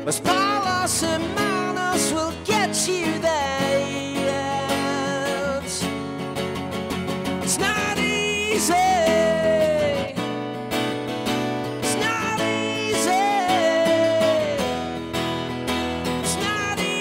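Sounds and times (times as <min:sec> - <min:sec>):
man singing long notes: 0:00.0 - 0:05.8, 0:07.5 - 0:10.2, 0:11.8 - 0:14.8, 0:16.3 - 0:17.0
strummed acoustic guitar: 0:00.0 - 0:17.0.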